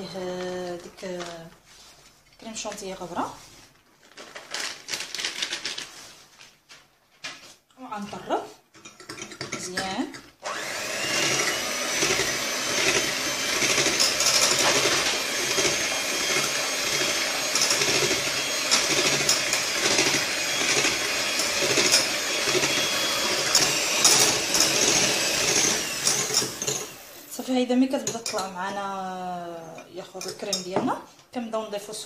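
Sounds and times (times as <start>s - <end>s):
electric hand mixer whipping: 10.4s - 27.4s.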